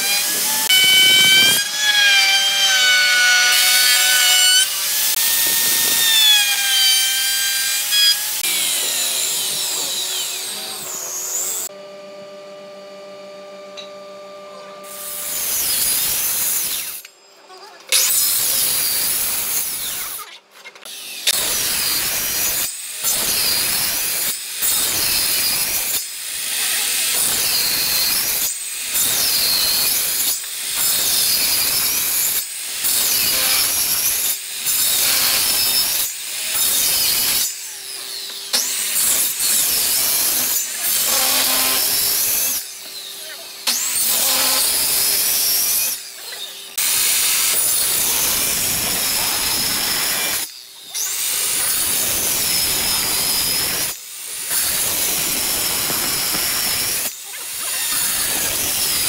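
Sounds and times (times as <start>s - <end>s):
circular saw cutting wood: 0.0s - 11.9s, 13.6s - 17.1s, 17.9s - 59.0s.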